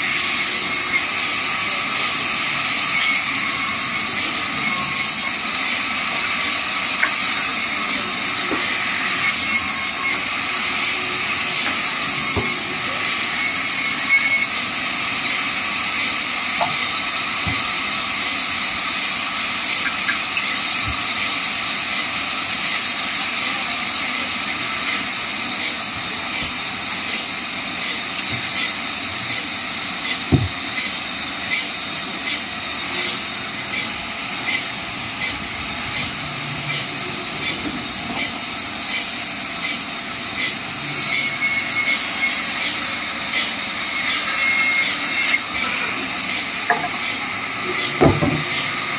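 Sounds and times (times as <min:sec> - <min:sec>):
band saw cutting wood: 0:00.0 - 0:48.9
thin high whistle: 0:13.4 - 0:14.6, 0:40.8 - 0:43.0
knocks: 0:30.3 - 0:30.6.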